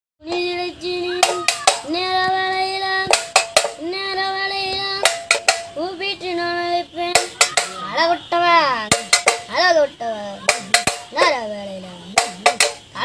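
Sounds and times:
boy singing held notes: 0.2 - 13.0
beating an empty paint tin: 1.1 - 2.1, 3.0 - 4.0, 5.0 - 5.8, 7.0 - 8.0, 8.9 - 9.6, 10.4 - 11.4, 12.1 - 13.0.

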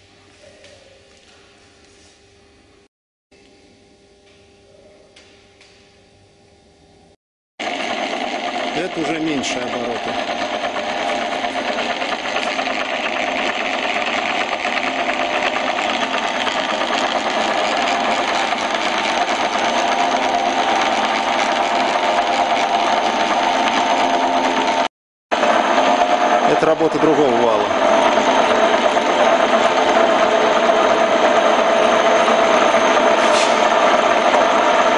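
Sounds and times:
lathe running: 7.6 - 34.9.

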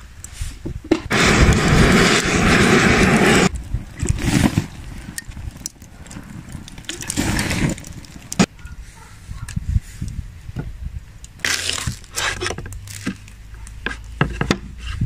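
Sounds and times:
charcoal crackling: 1.0 - 9.1, 11.1 - 14.2
gas torch hissing: 1.1 - 3.5.

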